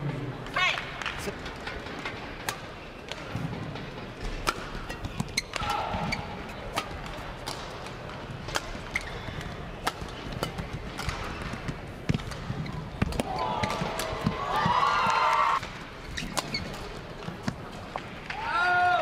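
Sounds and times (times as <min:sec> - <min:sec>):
rackets hitting shuttlecock: 0:02.4 - 0:18.4
shoe squeaking on court floor: 0:04.8 - 0:06.6, 0:12.3 - 0:13.9, 0:16.0 - 0:17.0.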